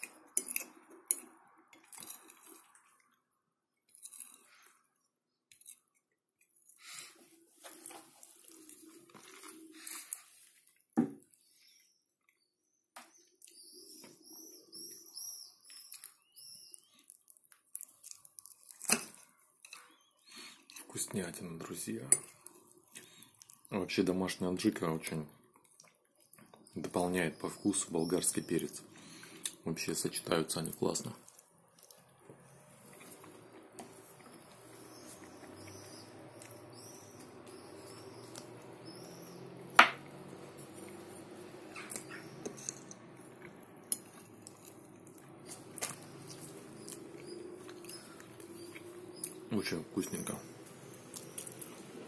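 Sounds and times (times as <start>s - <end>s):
small bird chirping: 11.4s - 17.3s, 19.8s - 22.1s, 32.5s - 43.0s, 45.4s - 51.9s
faint low hum: 17.0s - 52.0s.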